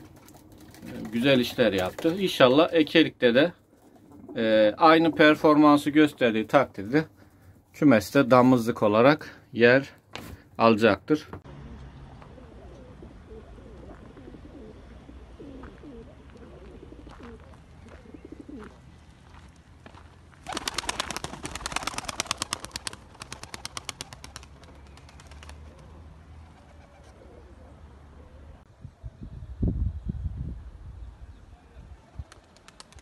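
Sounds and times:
pigeon wings fluttering: 0.0s - 2.3s, 20.4s - 25.9s, 32.2s - 33.0s
pigeons cooing softly: 3.6s - 5.4s, 11.7s - 19.4s, 24.2s - 28.6s.

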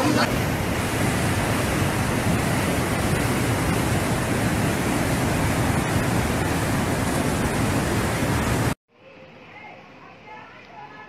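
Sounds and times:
floodwater rushing: 0.0s - 8.8s.

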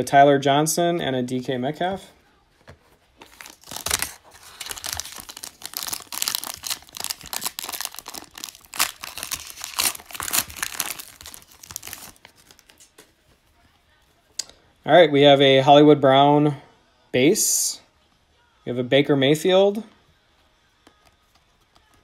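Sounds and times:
foil wrapper crinkling and tearing: 3.2s - 13.0s.

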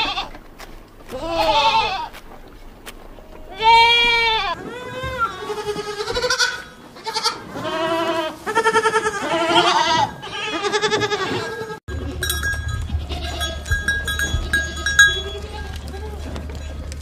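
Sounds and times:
goats bleating: 0.0s - 0.4s, 1.0s - 2.2s, 3.3s - 17.0s
clinking bells: 11.9s - 16.9s
low steady rumble: 11.9s - 17.0s.

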